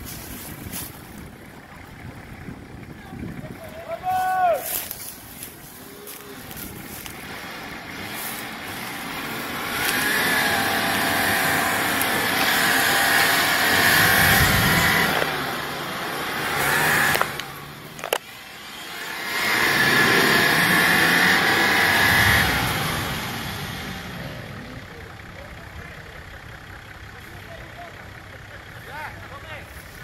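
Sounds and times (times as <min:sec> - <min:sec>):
engine revving hard: 0:06.1 - 0:17.7, 0:18.5 - 0:24.8.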